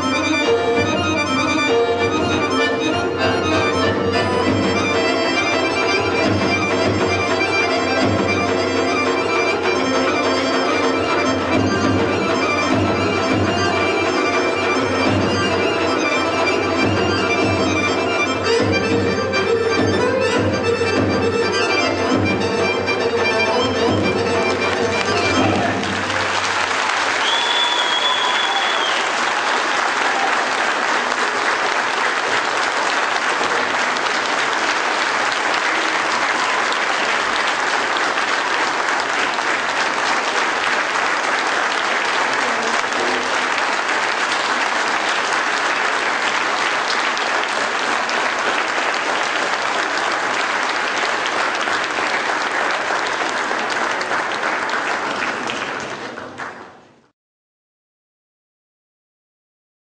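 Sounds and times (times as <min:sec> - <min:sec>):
audience applauding: 0:00.0 - 0:18.8, 0:24.3 - 0:57.0
high whistle: 0:27.2 - 0:29.2.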